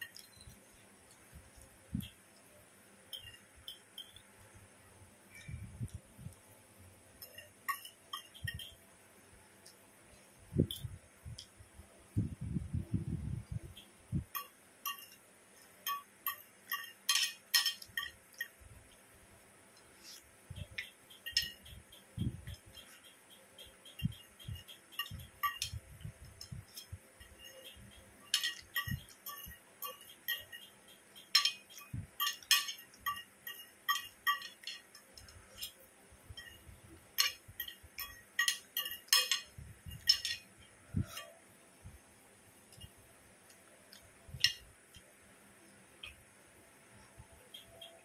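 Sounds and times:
fork clinking on a plate: 0:03.1 - 0:04.2, 0:07.2 - 0:08.8, 0:14.3 - 0:18.6, 0:20.0 - 0:41.4.

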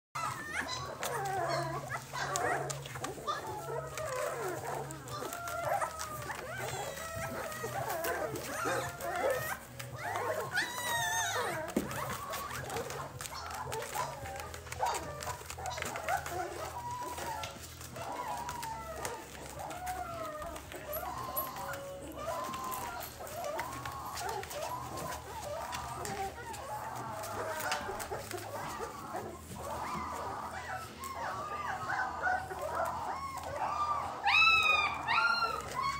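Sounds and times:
puppies whimpering and squeaking: 0:00.2 - 0:35.9
puppy squealing: 0:00.2 - 0:35.9.

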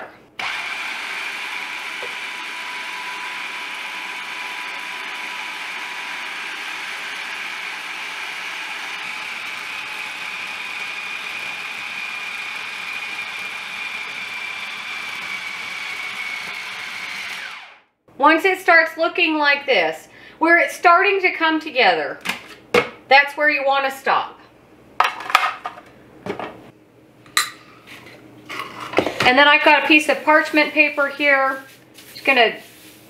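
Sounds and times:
food processor motor whine: 0:00.4 - 0:17.9.

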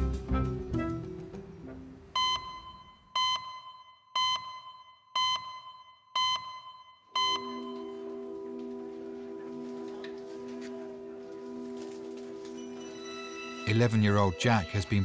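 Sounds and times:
short electronic beeps: 0:02.2 - 0:07.8
held music chord: 0:07.4 - 0:15.0.

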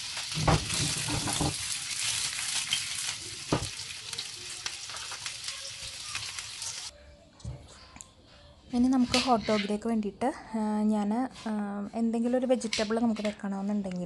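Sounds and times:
sausages sizzling in a frying pan: 0:00.0 - 0:06.9.

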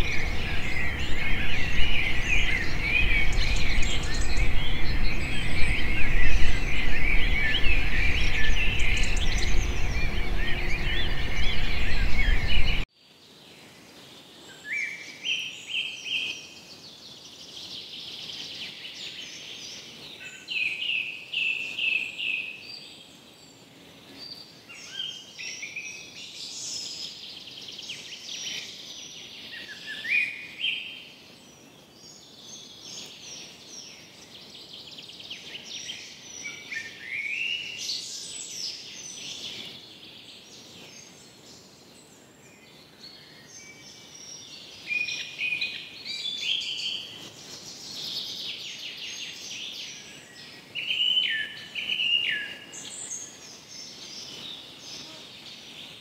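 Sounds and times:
loud noisy burst: 0:00.0 - 0:12.8
songbirds singing: 0:00.0 - 0:56.0.

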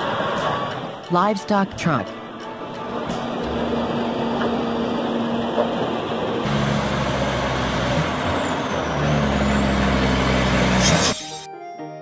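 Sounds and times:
truck diesel engine running: 0:02.2 - 0:11.4.

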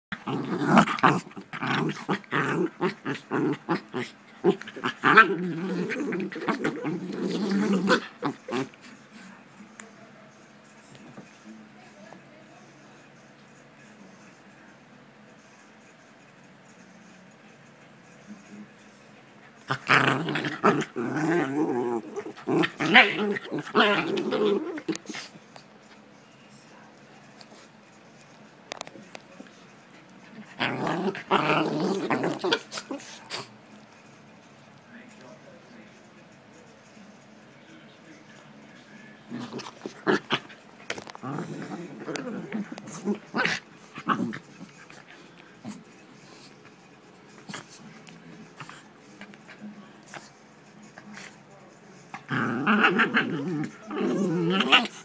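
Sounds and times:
puppies growling: 0:00.1 - 0:09.3, 0:19.6 - 0:25.4, 0:28.7 - 0:33.9, 0:39.2 - 0:46.7, 0:47.3 - 0:50.3, 0:52.1 - 0:55.0.

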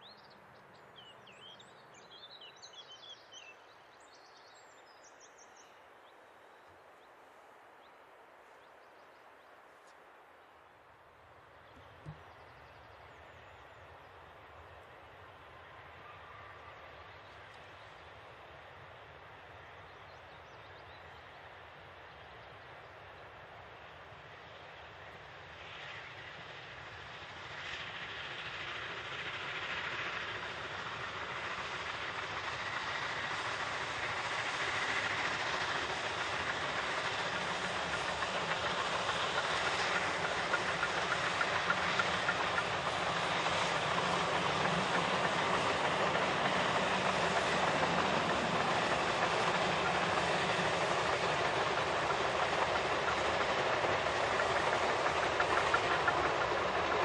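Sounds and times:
steam locomotive: 0:00.0 - 0:57.0
train carriages rolling: 0:27.4 - 0:57.0.

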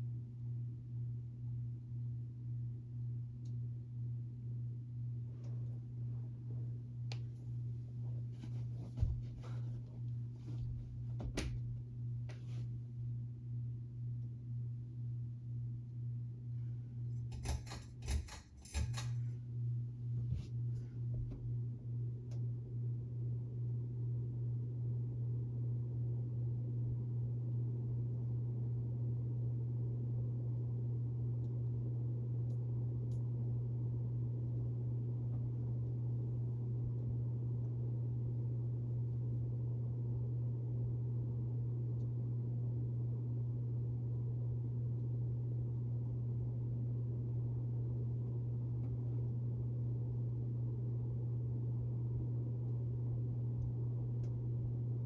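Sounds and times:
ceiling fan motor humming: 0:00.0 - 0:55.0.

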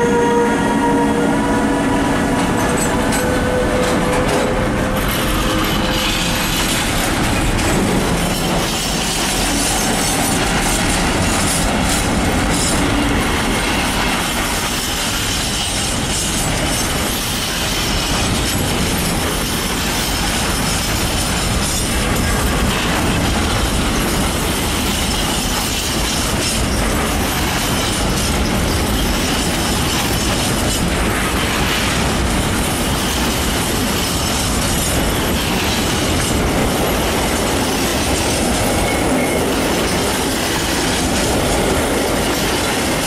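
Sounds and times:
locomotive tones: 0:00.0 - 0:14.6
train wheels rolling: 0:00.0 - 0:43.0
rail joint clicks: 0:01.6 - 0:43.0.

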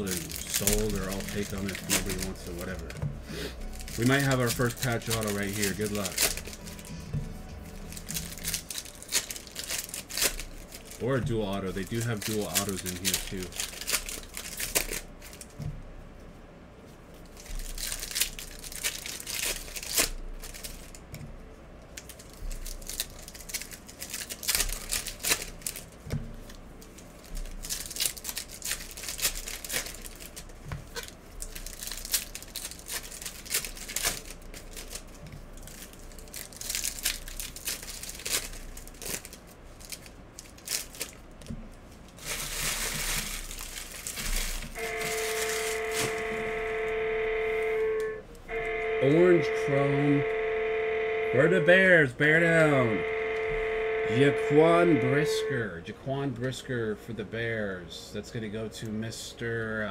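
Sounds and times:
card pack wrappers crinkling: 0:00.0 - 0:15.6, 0:17.1 - 0:21.1, 0:21.8 - 0:47.8.

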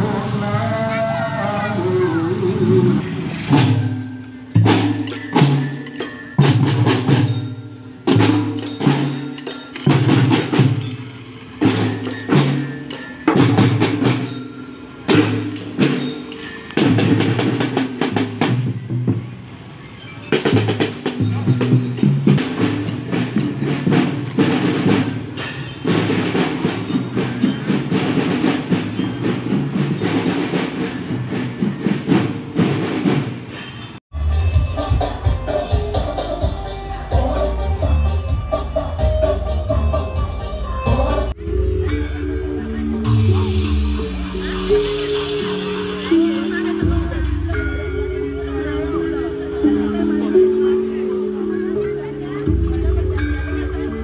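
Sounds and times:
snare and cymbal hits: 0:03.3 - 0:19.4, 0:20.1 - 0:40.3, 0:42.9 - 0:48.7
bass drum strokes: 0:37.7 - 0:50.6.

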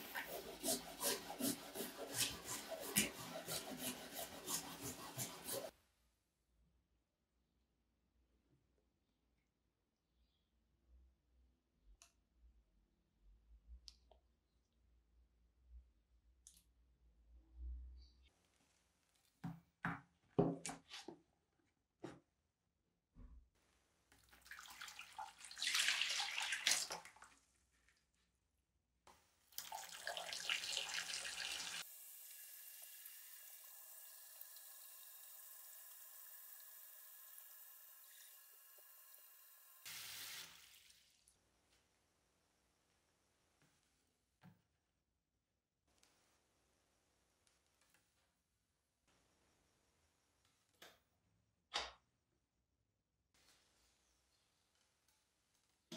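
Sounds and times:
water pouring from hose into basin: 0:24.2 - 0:27.4, 0:29.6 - 0:41.3.

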